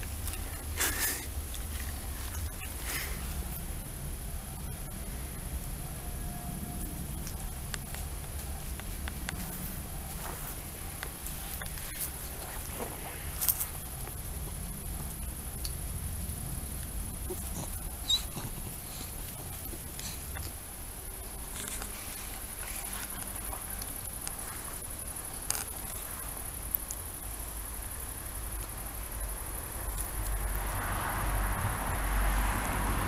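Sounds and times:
rustling: 0:00.0 - 0:05.6, 0:06.5 - 0:27.2
insects chirring: 0:00.0 - 0:33.0.

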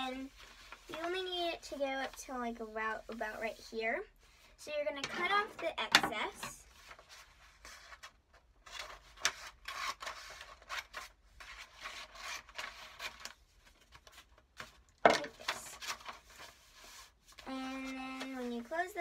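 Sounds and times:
paper rustling: 0:06.7 - 0:19.0.

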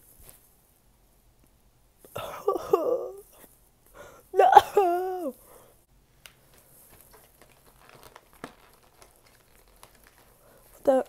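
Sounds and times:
woman whimpering: 0:02.2 - 0:03.4, 0:04.3 - 0:05.4.

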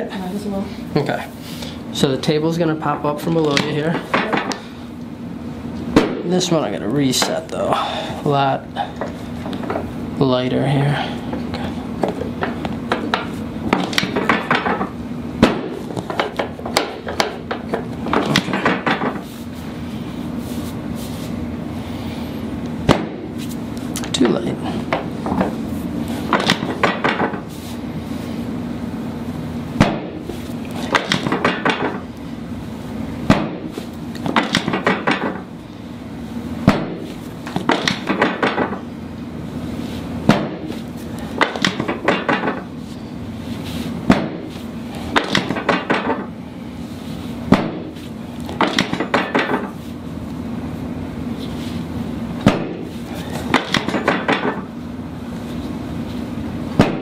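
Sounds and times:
steady low hum: 0:00.0 - 0:57.0.

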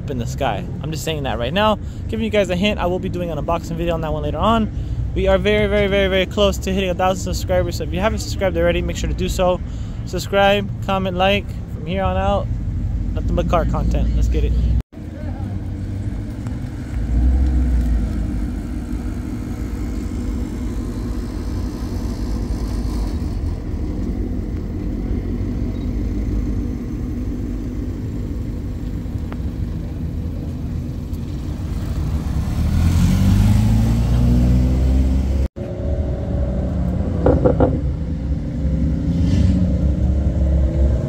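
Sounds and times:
car engines rumbling: 0:00.0 - 0:41.0
car engine revving: 0:15.4 - 0:41.0.

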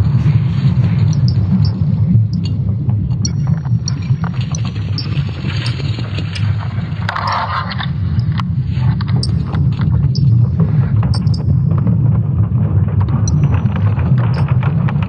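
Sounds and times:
crackles and clicks: 0:00.0 - 0:15.0
steady low rumble: 0:00.0 - 0:15.0.

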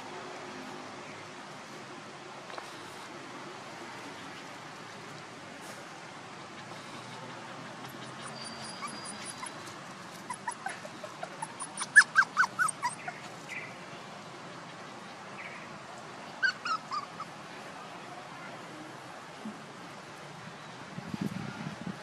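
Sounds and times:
puppies whimpering and yipping: 0:06.7 - 0:13.6, 0:16.4 - 0:17.4.

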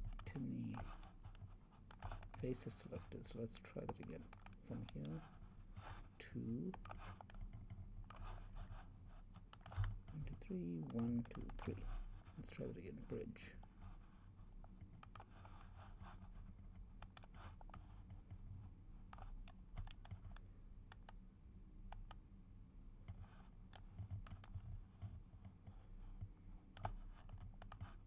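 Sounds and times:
mouse and keyboard clicks: 0:00.0 - 0:02.5, 0:03.9 - 0:05.1, 0:06.7 - 0:08.4, 0:09.3 - 0:10.2, 0:10.8 - 0:11.8, 0:15.0 - 0:15.7, 0:17.0 - 0:17.9, 0:19.1 - 0:21.2, 0:23.1 - 0:24.6, 0:26.8 - 0:28.0
low steady hum: 0:00.0 - 0:28.0.

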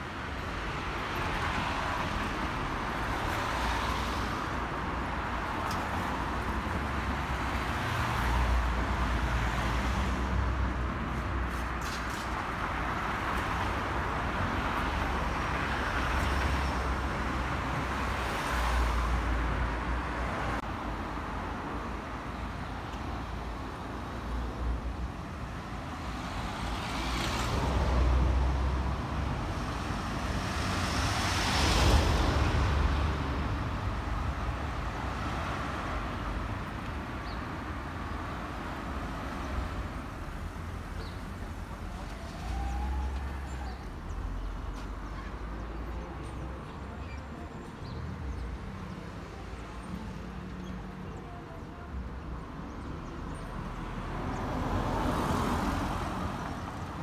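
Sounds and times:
cars driving past: 0:53.0 - 0:57.0.

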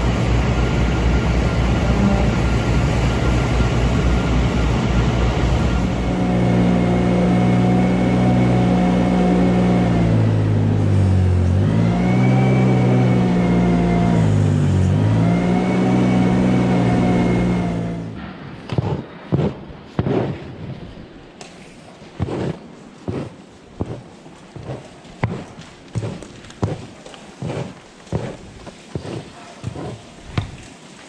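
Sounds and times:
loader engine running: 0:00.0 - 0:19.7.

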